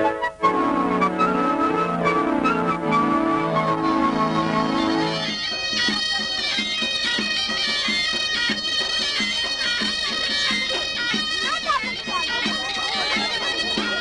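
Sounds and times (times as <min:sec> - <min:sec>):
shrill reed instrument folk tune: 0:00.0 - 0:14.0
steady drum beat: 0:04.3 - 0:14.0.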